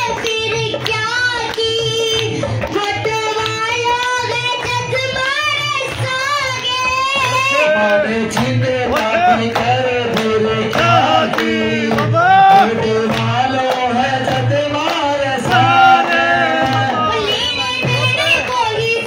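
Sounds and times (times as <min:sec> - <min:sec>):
devotional song through sound system: 0:00.0 - 0:19.0
low drum beat: 0:07.0 - 0:19.0.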